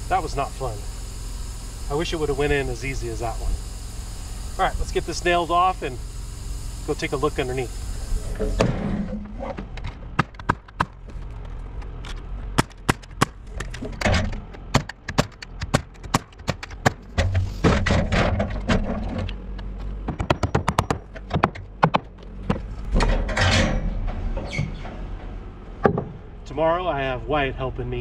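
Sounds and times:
hammer striking nails into wood: 12.6 - 13.4, 14.6 - 18.1, 20.0 - 22.6.

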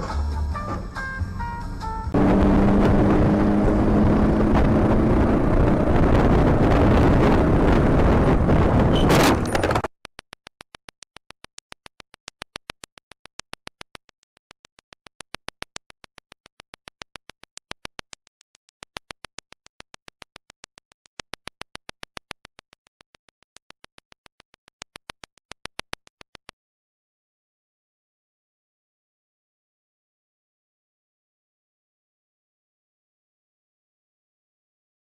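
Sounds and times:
rapid regular clicking: 9.8 - 26.5.

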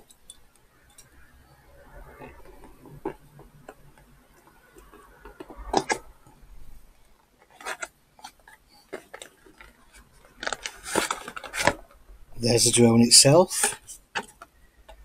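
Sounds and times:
packaging clicks and crinkles: 7.5 - 11.8.

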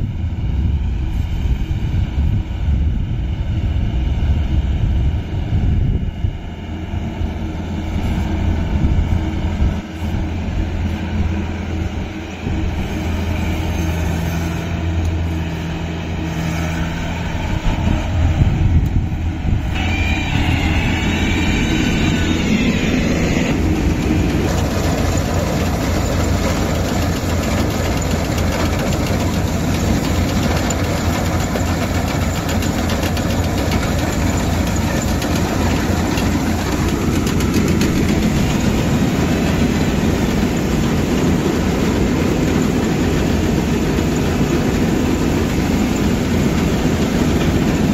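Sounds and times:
diesel engine humming: 5.3 - 47.9
clatter of threshing machinery: 19.8 - 47.9.

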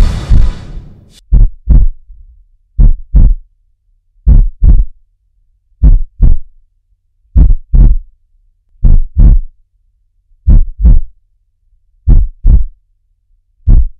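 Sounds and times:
heartbeat thumps: 0.0 - 2.0, 2.8 - 3.4, 4.3 - 5.0, 5.8 - 6.5, 7.4 - 8.1, 8.8 - 9.5, 10.5 - 11.1, 12.1 - 12.8, 13.7 - 13.9.

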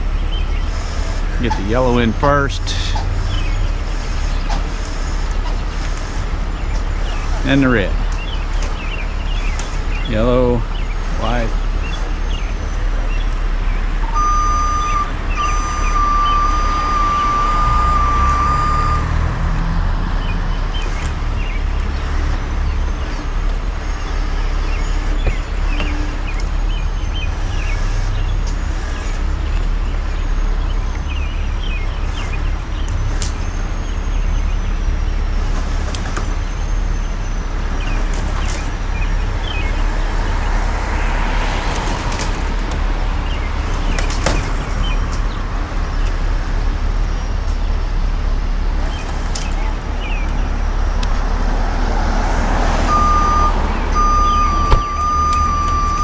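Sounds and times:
diesel truck engine running: 0.0 - 56.0
high electronic warning beeps: 14.0 - 19.4, 52.9 - 56.0.

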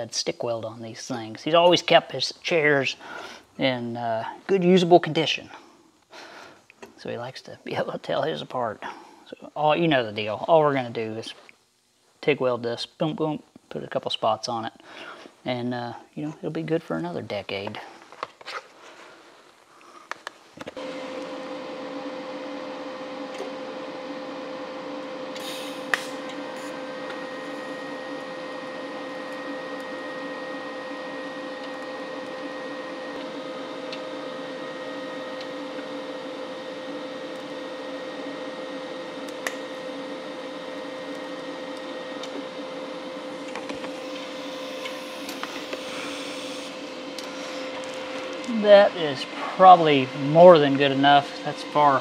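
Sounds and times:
welder electrical hum: 0.0 - 52.0.

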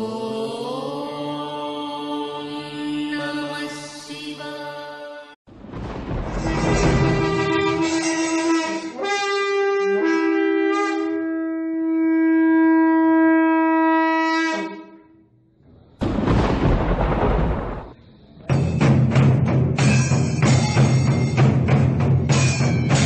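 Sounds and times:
noisy crash: 5.5 - 8.4, 15.6 - 18.3
conch shell blown: 6.6 - 15.2.

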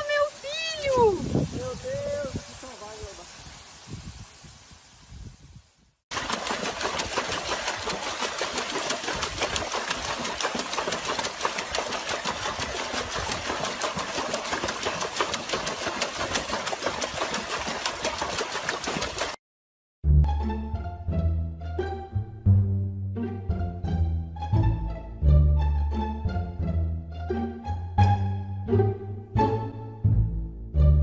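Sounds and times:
water splashing in a tub: 6.1 - 19.4.

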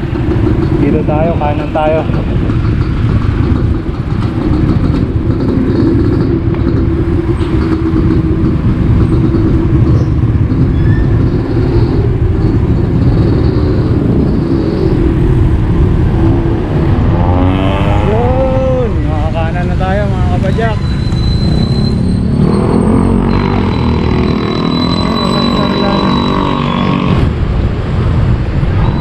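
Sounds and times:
steady low rumble: 0.0 - 20.5
car engine: 0.0 - 29.0
motor traffic: 0.0 - 29.0.

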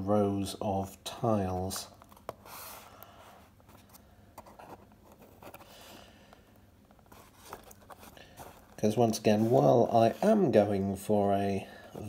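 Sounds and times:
fingers rustling card: 1.7 - 10.8.

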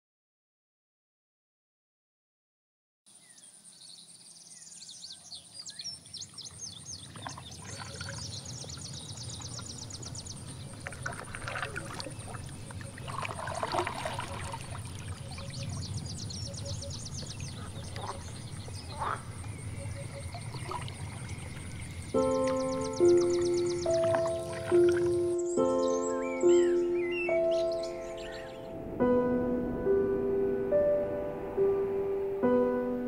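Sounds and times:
small birds chirping: 3.1 - 28.8.

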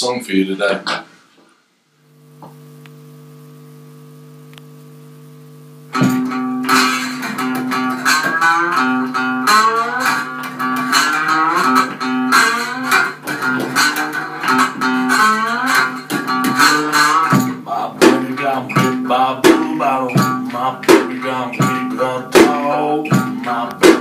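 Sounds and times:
electrical hum: 0.0 - 24.0
guitar riff with bent notes: 5.6 - 24.0.

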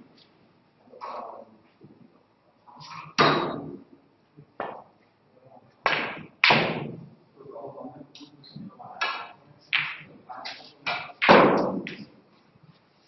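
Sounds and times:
snooker balls clacking: 4.6 - 5.0, 5.8 - 7.0, 9.0 - 12.1.

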